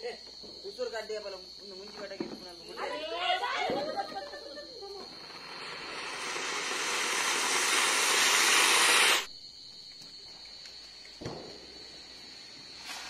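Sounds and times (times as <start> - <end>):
firework spraying sparks hissing: 3.9 - 9.3, 11.2 - 13.0.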